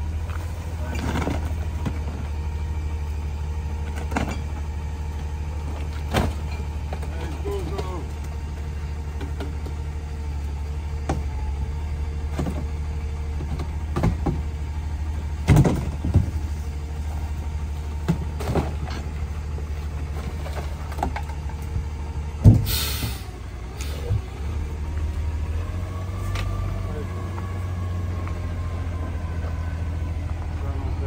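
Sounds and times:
garbage truck idling: 0.0s - 31.0s
trash thumps and knocks: 3.9s - 4.6s, 5.8s - 7.1s, 12.3s - 14.6s, 15.4s - 16.6s, 18.0s - 19.2s, 20.1s - 22.7s
hiss of air: 22.6s - 24.0s.

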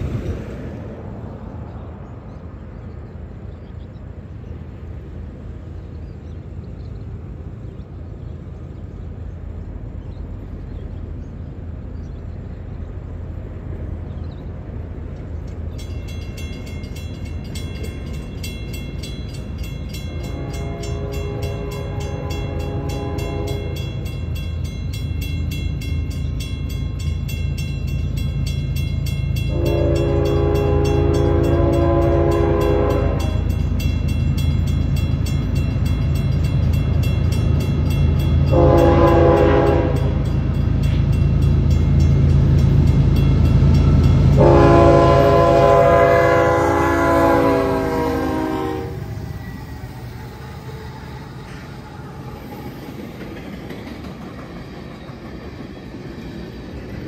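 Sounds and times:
diesel locomotive rumble: 0.0s - 57.0s
locomotive horn blasts: 20.1s - 24.1s, 29.4s - 33.7s, 38.4s - 40.4s, 44.2s - 49.2s.

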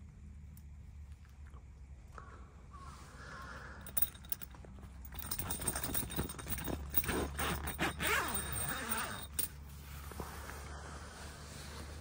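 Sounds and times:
tent zipper rasping: 5.2s - 10.6s.

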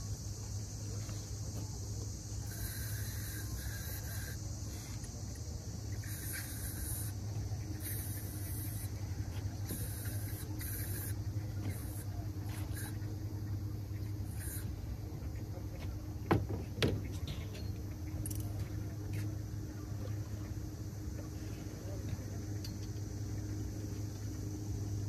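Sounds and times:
faint hissing: 0.0s - 16.0s
steady low hum: 0.0s - 25.0s.

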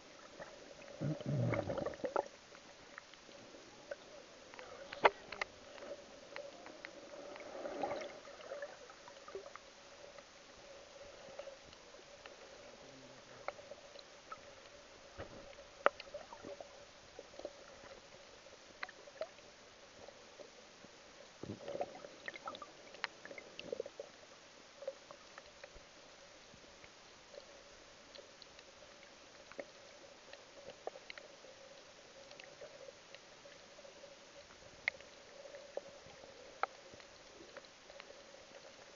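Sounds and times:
faint underwater hum: 0.0s - 38.9s
small clicks and crackles: 0.0s - 38.9s
rushes of water: 0.1s - 3.5s, 4.6s - 9.6s.

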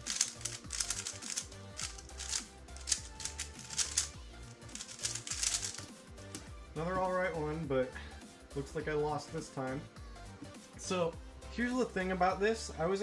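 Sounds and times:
background music with steady beat: 0.0s - 13.0s
light plastic clicks of puzzle cube: 0.1s - 4.1s, 4.7s - 6.5s.

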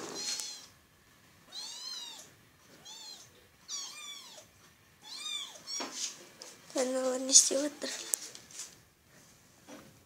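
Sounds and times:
kittens mewing: 1.5s - 6.1s.

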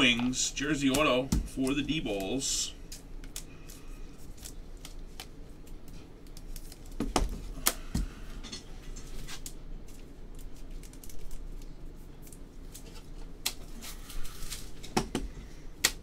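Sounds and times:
trading cards clicking and rustling: 0.1s - 8.1s.

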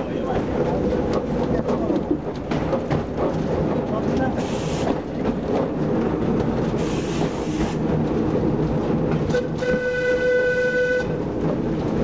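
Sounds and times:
tram rumbling on track: 0.0s - 12.0s
tram horn: 9.3s - 11.2s.

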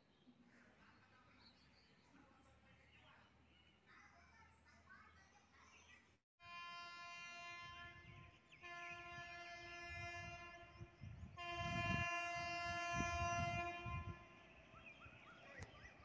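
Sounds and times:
distant train horn blasts: 6.4s - 15.1s.

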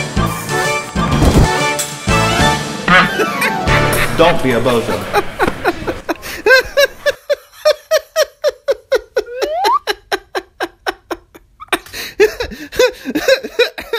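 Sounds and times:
high-pitched rhythmic laugh: 2.9s - 3.6s, 5.4s - 13.9s.

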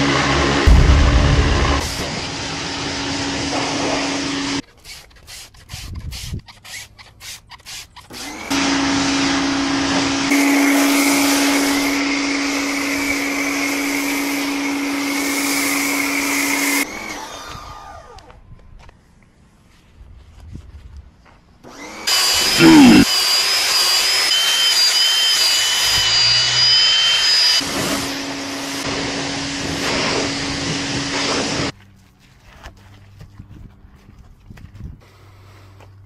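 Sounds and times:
pressure washer running: 0.0s - 4.6s, 8.2s - 17.1s, 21.9s - 31.7s
high whistle: 24.3s - 27.6s.

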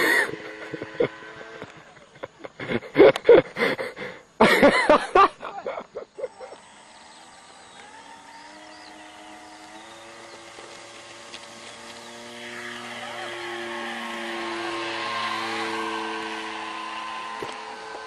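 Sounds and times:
model plane motor humming: 0.0s - 4.6s, 6.1s - 18.0s
loud laughter: 0.0s - 6.6s.

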